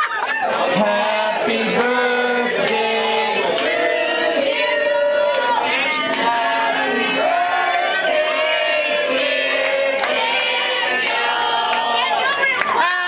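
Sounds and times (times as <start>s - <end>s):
karaoke backing track: 0.0s - 13.0s
man singing into microphone: 0.7s - 3.9s.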